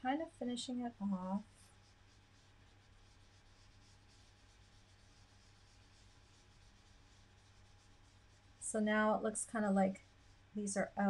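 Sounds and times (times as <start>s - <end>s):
low steady hum: 0.0s - 11.0s
sponge dabbing on card: 0.1s - 8.7s.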